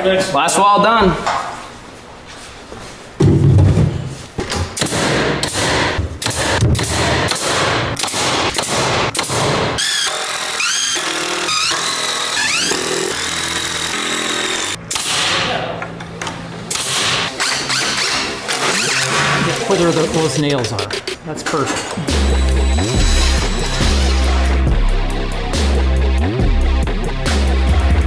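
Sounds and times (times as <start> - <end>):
nail gun firing: 4.8 - 11.3, 14.9 - 15.4, 16.7 - 19.4.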